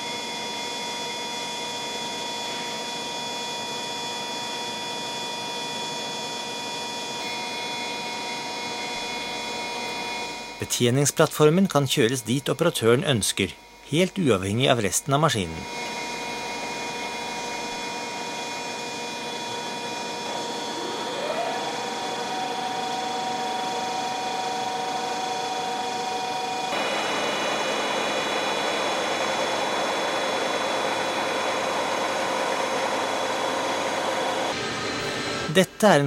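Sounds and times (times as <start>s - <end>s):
milling machine whine: 0.0s - 35.8s.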